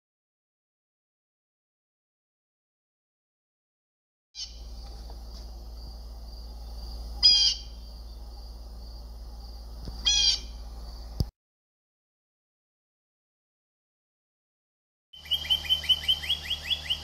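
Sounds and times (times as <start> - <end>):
blue jay calls: 4.4 - 4.9, 6.3 - 8.5, 9.5 - 10.8, 15.2 - 17.0
low hum: 4.4 - 11.3.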